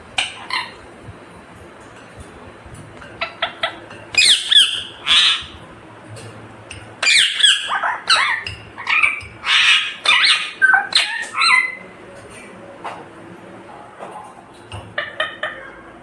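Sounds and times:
parakeet squawking: 0.2s - 0.8s, 3.2s - 5.6s, 7.0s - 11.9s, 15.0s - 15.8s.

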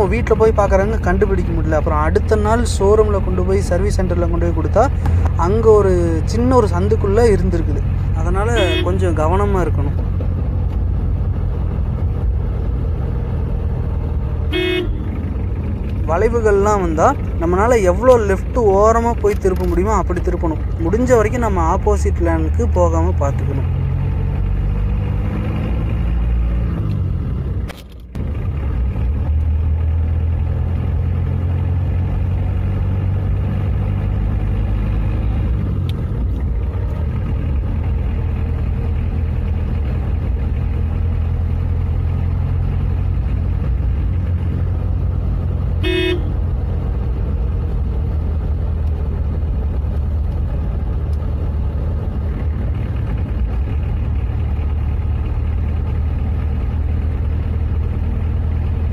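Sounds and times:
car engine running inside cabin: 0.0s - 58.9s
car horn toot: 8.5s - 9.2s, 14.5s - 15.2s, 45.8s - 46.4s.

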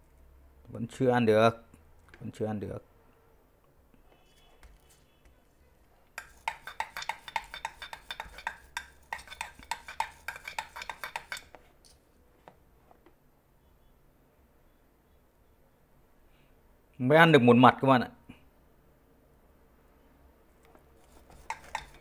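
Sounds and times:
soldering tip scrubbing in brass wool: 6.2s - 11.5s, 21.0s - 22.0s.

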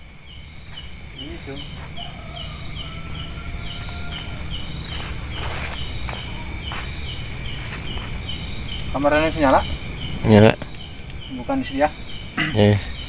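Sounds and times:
cricket chirping: 0.0s - 13.0s
high insect drone: 0.0s - 13.0s
footsteps scuffing on ground: 1.7s - 2.2s, 3.1s - 8.4s.

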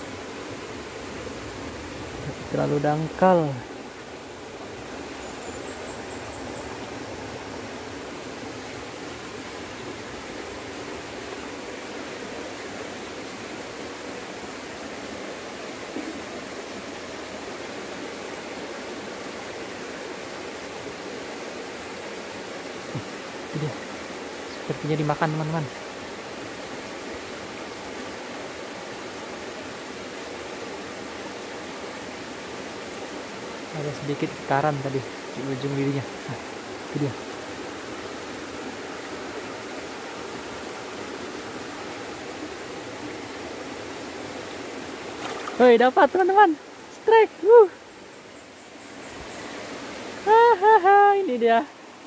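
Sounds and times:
stream rushing: 0.0s - 52.0s.

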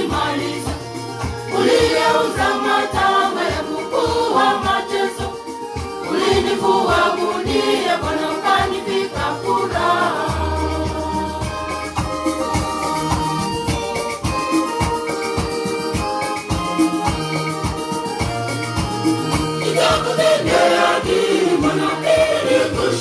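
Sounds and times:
choir singing: 0.0s - 12.5s, 19.6s - 23.0s
keyboard sustained chords: 0.0s - 23.0s
percussion beat: 0.0s - 23.0s.

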